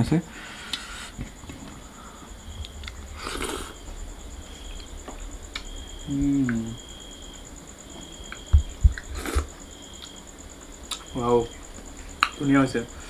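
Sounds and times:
person breathing: 0:00.3 - 0:01.2, 0:01.8 - 0:02.4.

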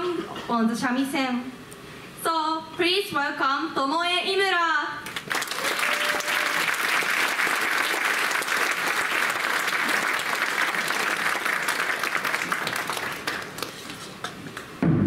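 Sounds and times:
audience applauding: 0:05.1 - 0:14.2.

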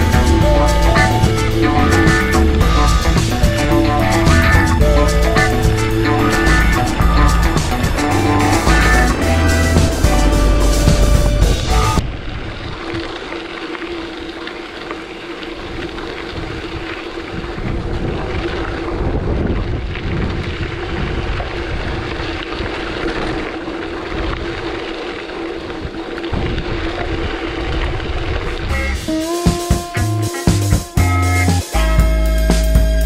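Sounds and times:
gusty wind on microphone: 0:00.0 - 0:14.3, 0:15.5 - 0:29.2.

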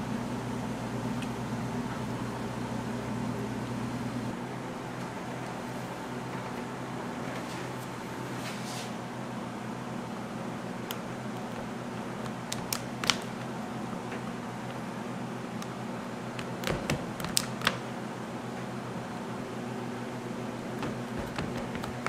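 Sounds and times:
steady low hum: 0:00.0 - 0:22.0
sharp clicks and taps: 0:10.9 - 0:14.8, 0:16.4 - 0:17.8, 0:20.8 - 0:22.0.

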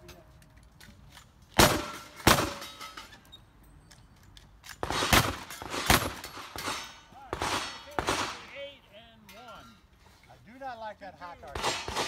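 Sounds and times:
gunshots with echo: 0:04.8 - 0:08.5, 0:11.6 - 0:12.0.

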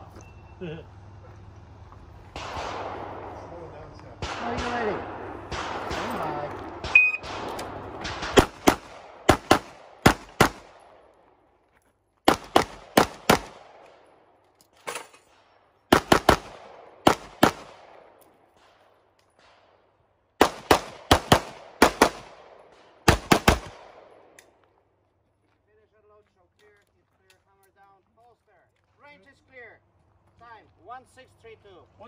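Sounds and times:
pistol shots with echo: 0:02.3 - 0:11.2, 0:12.3 - 0:14.3, 0:15.3 - 0:19.8, 0:20.4 - 0:24.4
shot timer beep: 0:06.9 - 0:07.2.

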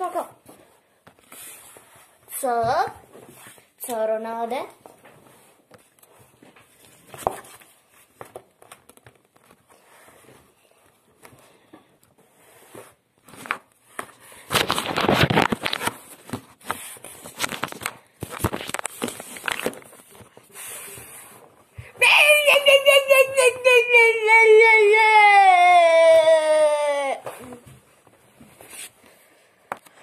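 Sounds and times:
paper rustling and crinkling: 0:05.1 - 0:11.7, 0:12.7 - 0:21.5.

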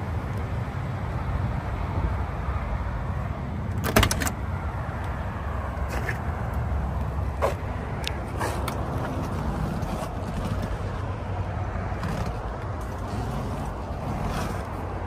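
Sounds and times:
car door latch clicks: 0:03.8 - 0:04.4.

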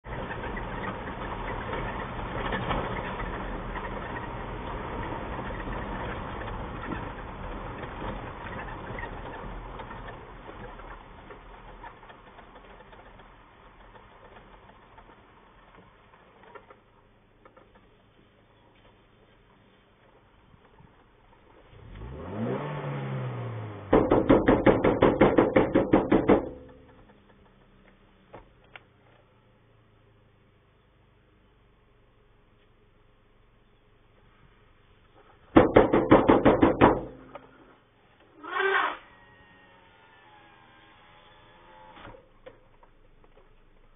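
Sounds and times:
vehicle engine running: 0:00.0 - 0:38.4
tyre and road noise: 0:00.0 - 0:39.9
engine revving: 0:21.6 - 0:24.9.

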